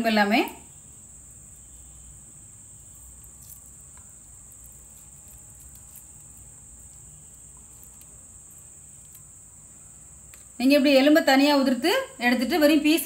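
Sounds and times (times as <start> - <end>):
fingers tearing chicken meat: 2.9 - 9.3.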